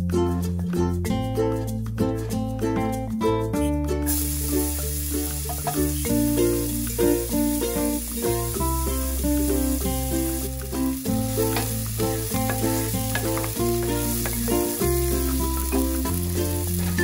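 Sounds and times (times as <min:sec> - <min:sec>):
background music with bass: 0:00.0 - 0:17.0
onion sizzling in oil: 0:04.1 - 0:17.0.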